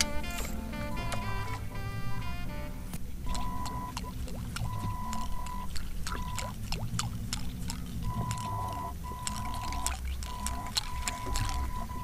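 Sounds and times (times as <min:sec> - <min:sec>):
water splashing and gurgling: 0:03.1 - 0:12.0.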